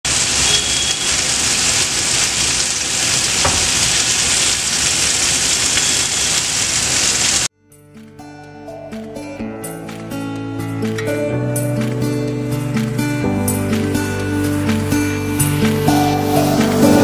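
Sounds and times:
chicken sizzling in oil: 0:00.1 - 0:07.5
soft music: 0:07.6 - 0:17.0.

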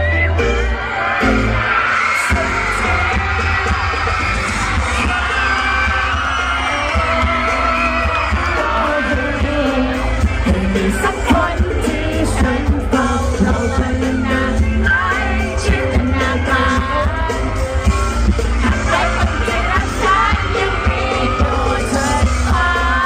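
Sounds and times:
amplified band with heavy bass: 0:00.0 - 0:23.0
crowd shouting: 0:00.3 - 0:23.0
man singing into microphone: 0:06.9 - 0:17.4.

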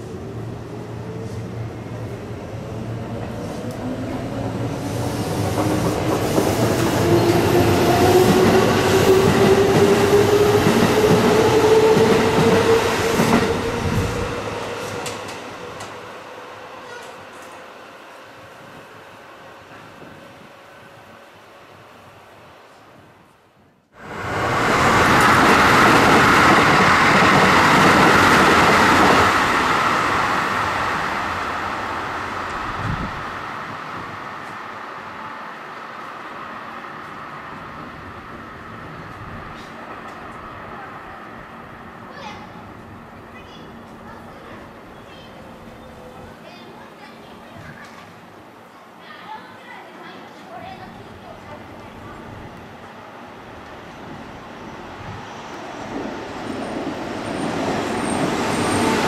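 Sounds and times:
train wheels rumbling on rails: 0:03.1 - 0:17.7, 0:24.0 - 0:40.9, 0:50.3 - 0:59.0
wheels rumbling on rail: 0:24.0 - 0:46.3.

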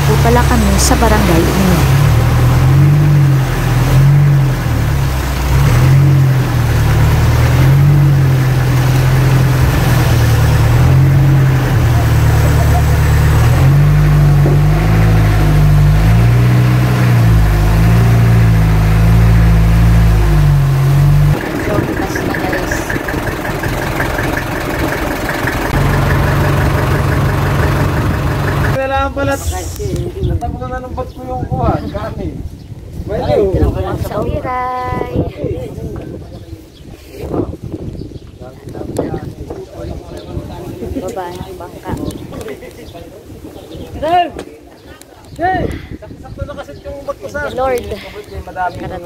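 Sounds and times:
deep loud hum: 0:00.0 - 0:28.8
boat engine running: 0:00.0 - 0:29.3
boat engine ticking knock: 0:17.3 - 0:28.8.

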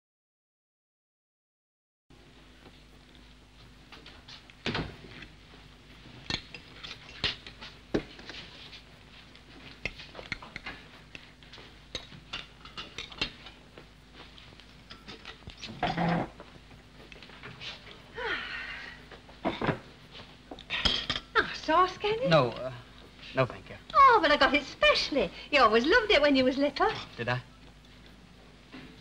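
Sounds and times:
faint steady hum: 0:02.1 - 0:29.0
crockery and cutlery clinking: 0:20.7 - 0:21.4.

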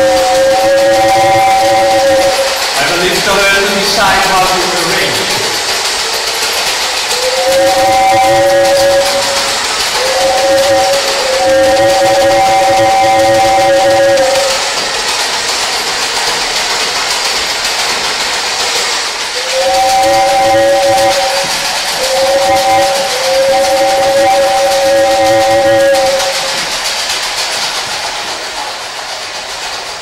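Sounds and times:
whistle-like chord: 0:00.0 - 0:03.4, 0:07.0 - 0:14.8, 0:19.4 - 0:26.7
steady loud hiss: 0:00.0 - 0:16.4.

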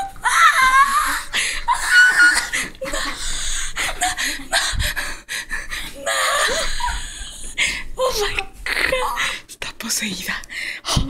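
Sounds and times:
wheezy laughter: 0:00.1 - 0:04.8, 0:06.0 - 0:07.5.

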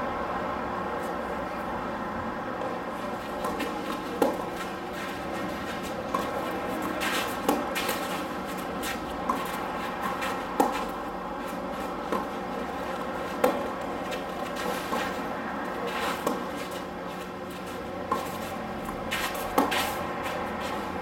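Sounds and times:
rackets striking tennis ball: 0:02.6 - 0:21.0
shoes on court: 0:02.6 - 0:21.0
ball bouncing on court: 0:03.4 - 0:04.5, 0:05.3 - 0:08.0.

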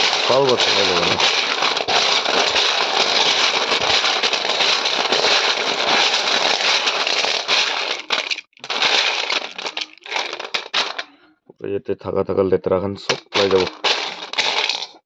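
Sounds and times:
snail shells clattering in steel bowl: 0:00.0 - 0:11.1, 0:13.1 - 0:15.0.

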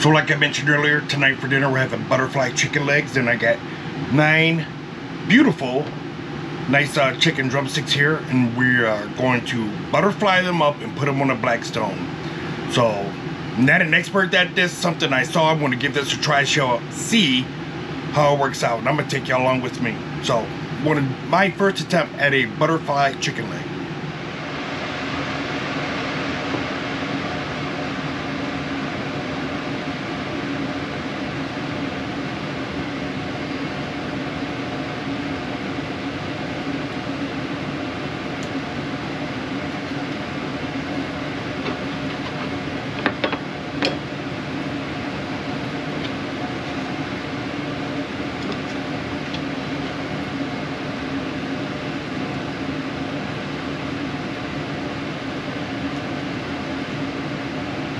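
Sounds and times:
air conditioner fan hum: 0:00.0 - 0:57.9.

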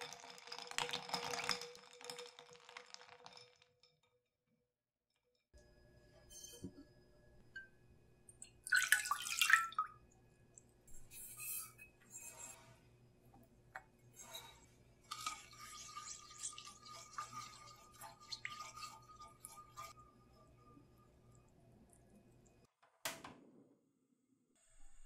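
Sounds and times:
milk pouring into a pan: 0:00.0 - 0:03.6, 0:08.4 - 0:10.0, 0:14.2 - 0:21.0
spatula stirring milk: 0:10.9 - 0:21.4.

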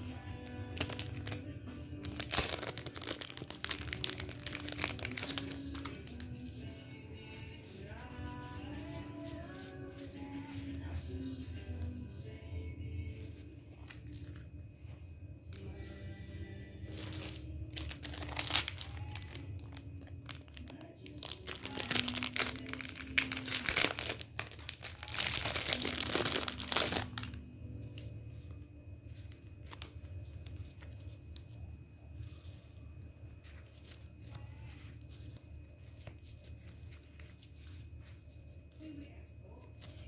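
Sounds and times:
plastic packaging crinkling: 0:00.7 - 0:11.5, 0:16.9 - 0:31.6
paper labels rustling: 0:00.7 - 0:12.0, 0:15.5 - 0:40.0.

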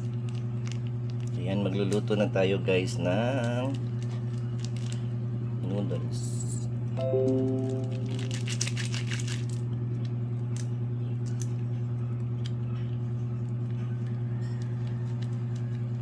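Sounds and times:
plastic packet crinkling: 0:00.1 - 0:01.4, 0:03.4 - 0:05.0, 0:08.0 - 0:09.6
low pulsing hum: 0:06.5 - 0:16.0.

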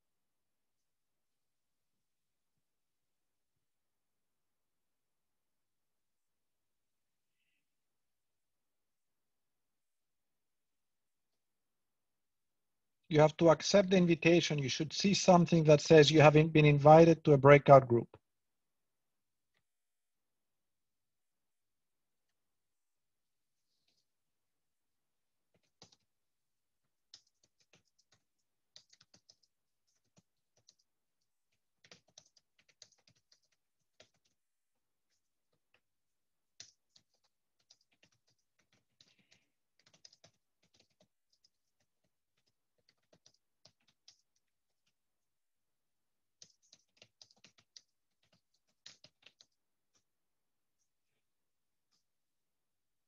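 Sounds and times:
typing on keyboard: 0:25.5 - 0:26.2, 0:26.8 - 0:35.9, 0:36.5 - 0:45.0, 0:46.3 - 0:50.1.

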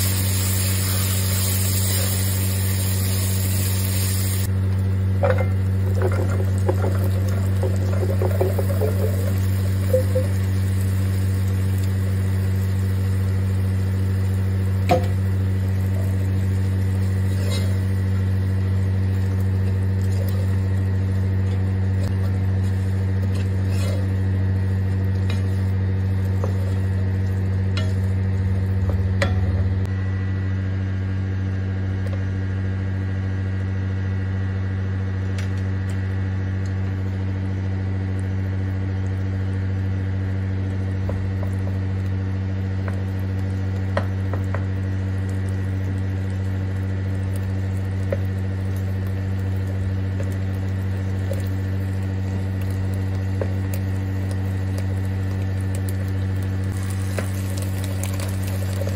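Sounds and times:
food sizzling in oil: 0:00.0 - 0:04.5, 0:05.1 - 0:28.8, 0:44.0 - 0:58.9
steady low hum: 0:00.0 - 0:58.9
wooden spoon scraping pot: 0:05.8 - 0:10.4, 0:22.1 - 0:24.2.

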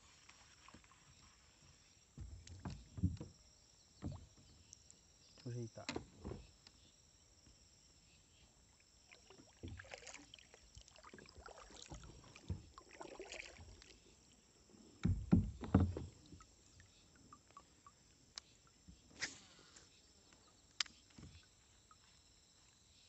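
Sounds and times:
paddle splashing in water: 0:00.0 - 0:03.3, 0:08.7 - 0:20.0
paddle knocking against kayak: 0:02.1 - 0:04.7, 0:05.4 - 0:06.8, 0:11.8 - 0:13.8, 0:15.0 - 0:16.5.

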